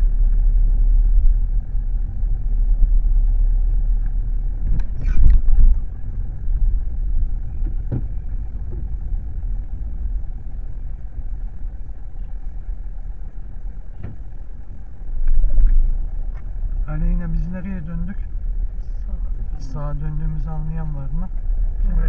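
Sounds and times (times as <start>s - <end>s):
car cabin engine rumble: 0.0s - 22.0s
faint knocks: 7.6s - 9.2s.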